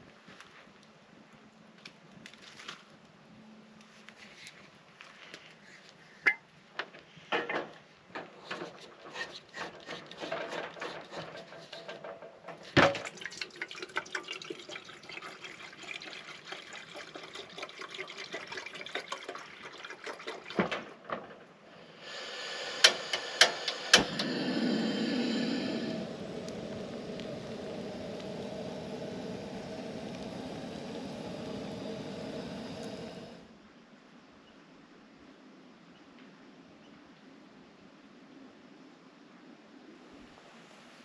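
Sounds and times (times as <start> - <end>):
wood campfire crackling: 8.4 - 33.5
water pouring into kettle: 9.2 - 21.1, 21.8 - 33.4.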